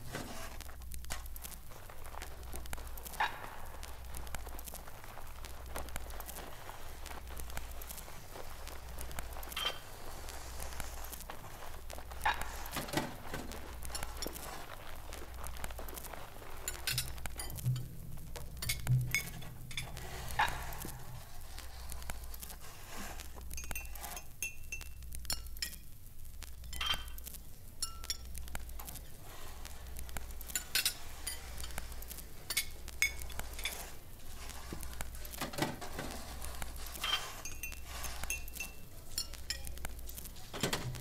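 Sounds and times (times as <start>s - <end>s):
glassy clinks: 26.7s - 27.2s, 37.0s - 39.7s.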